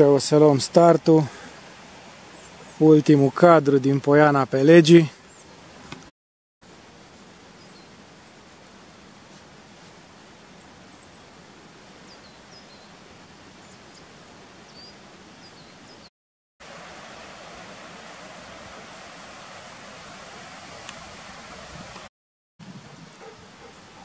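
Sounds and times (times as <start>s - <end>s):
mountain stream rushing: 16.6s - 22.1s.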